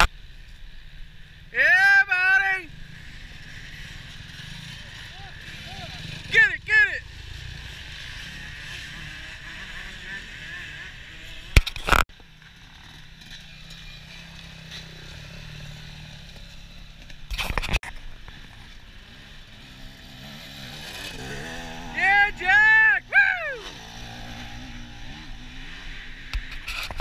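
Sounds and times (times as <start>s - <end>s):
dirt bike engines passing: 0.0s - 27.0s
loud bursts of engine noise: 2.4s - 11.6s, 18.3s - 27.0s.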